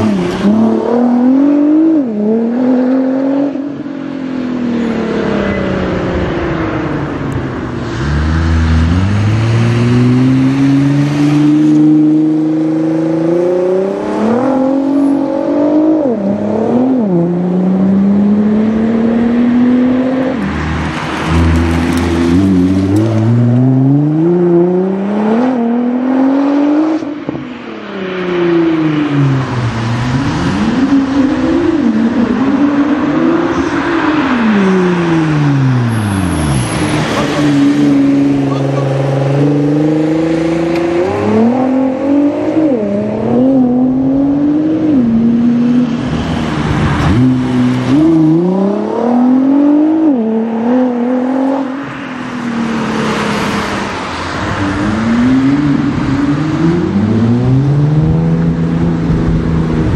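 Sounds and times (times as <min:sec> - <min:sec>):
sports car engine accelerating: 0:04.6 - 0:27.4, 0:28.1 - 0:51.8.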